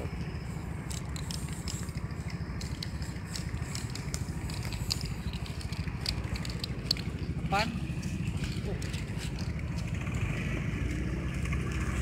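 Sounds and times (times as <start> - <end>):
vehicle engine idling: 0.0 - 12.0
spray-paint can hissing: 0.8 - 5.7.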